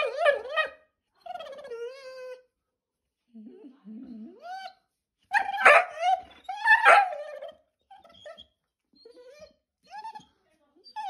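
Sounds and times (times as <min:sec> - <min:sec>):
dog whining: 0:00.0 - 0:02.4, 0:04.0 - 0:10.2
dog barking: 0:05.4 - 0:06.1, 0:06.7 - 0:07.3.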